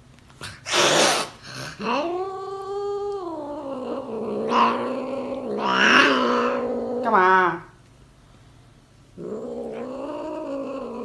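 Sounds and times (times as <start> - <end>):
cat hissing: 0.4 - 7.2
cat yowling: 1.8 - 7.1.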